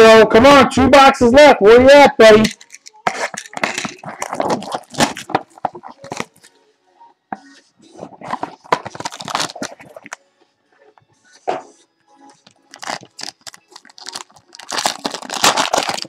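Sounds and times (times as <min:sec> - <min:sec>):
foil wrapper crinkling: 0:02.5 - 0:06.5, 0:08.4 - 0:10.2, 0:12.5 - 0:16.0.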